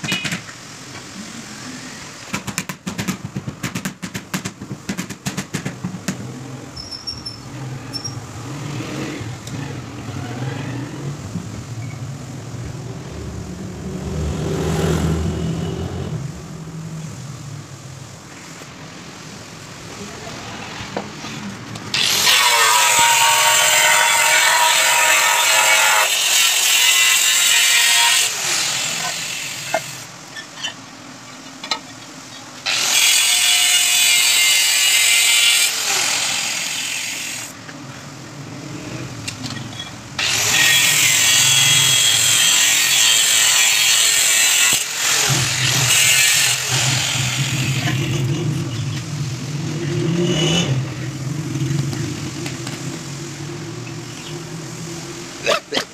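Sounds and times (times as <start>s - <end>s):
angle grinder cutting tiles: 21.9s - 30.1s, 32.7s - 37.5s, 40.2s - 48.9s.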